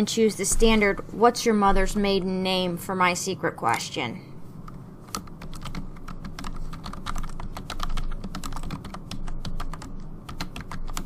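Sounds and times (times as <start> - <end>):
keyboard typing clicks: 4.7 - 11.0.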